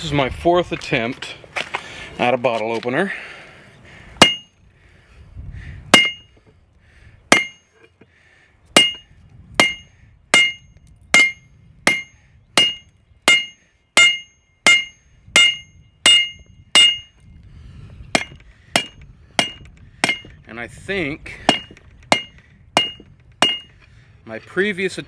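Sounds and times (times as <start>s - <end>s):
hammer striking metal on anvil: 4.2s - 4.5s, 5.9s - 6.3s, 7.3s - 7.6s, 8.8s - 9.0s, 9.6s - 17.2s, 18.2s - 20.3s, 21.5s - 23.7s.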